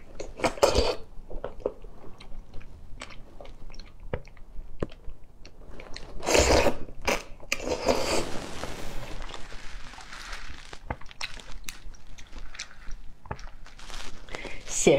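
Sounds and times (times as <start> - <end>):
chewing clicks and smacks: 1.4 - 5.6
wet sucking: 6.2 - 14.7.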